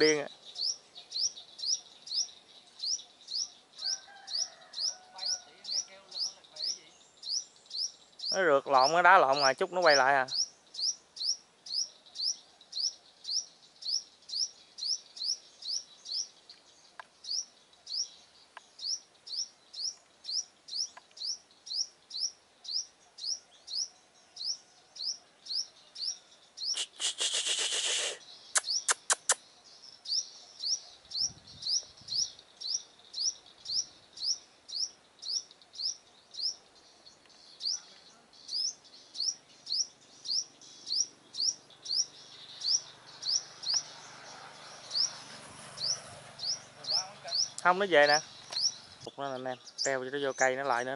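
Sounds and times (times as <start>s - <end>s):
bird chirping: 0.0s - 50.9s
sharp clicks: 26.8s - 29.4s.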